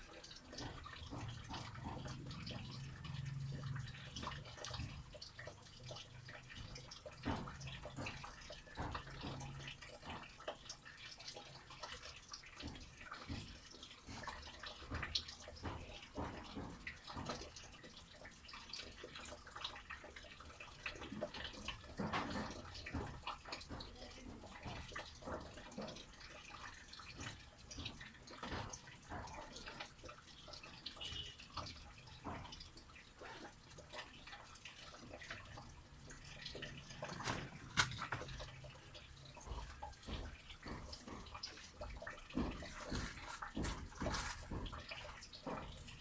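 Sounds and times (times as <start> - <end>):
rainwater dripping and splashing: 0.0 - 46.0
rain: 2.2 - 4.5.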